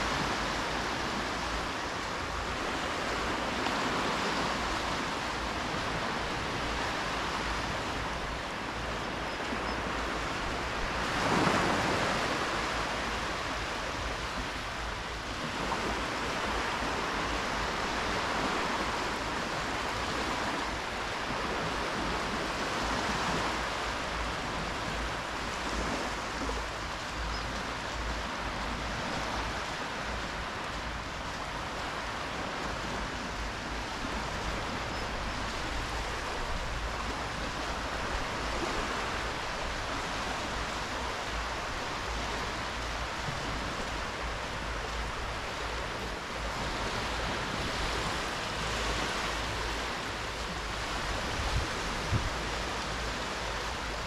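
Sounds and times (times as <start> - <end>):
small waves washing onto beach: 0.0 - 54.0.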